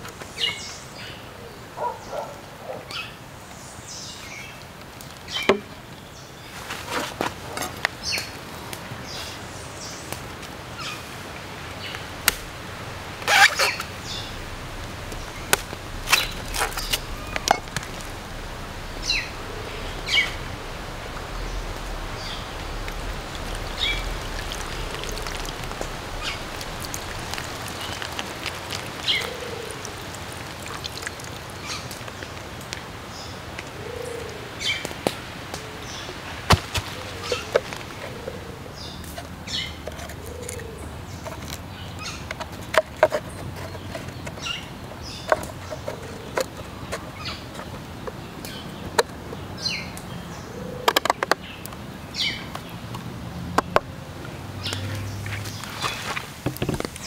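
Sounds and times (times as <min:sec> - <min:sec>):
steady outdoor background: 0:00.0 - 0:57.0
birds chirping: 0:07.4 - 0:34.9, 0:35.5 - 0:57.0.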